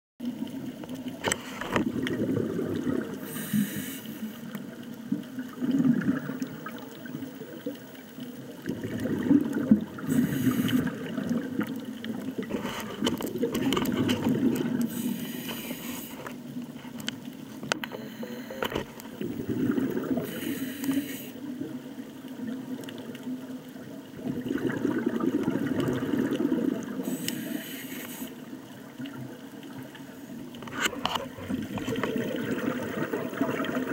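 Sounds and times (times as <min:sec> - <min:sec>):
exhaled bubbles gurgling: 0:00.2 - 0:33.9
regulator inhale hiss: 0:03.2 - 0:04.6, 0:10.0 - 0:11.1, 0:14.8 - 0:16.4, 0:20.2 - 0:21.5, 0:27.0 - 0:28.5.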